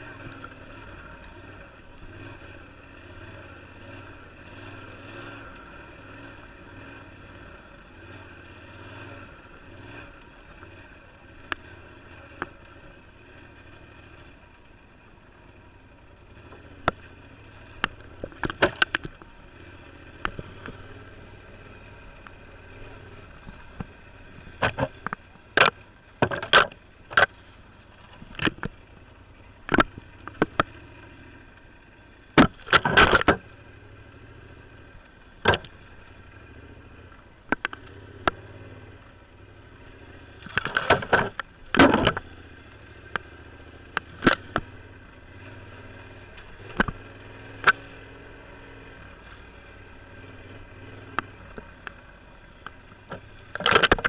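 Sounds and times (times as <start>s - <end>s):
motorcycle engine low hum: 0.0s - 54.0s.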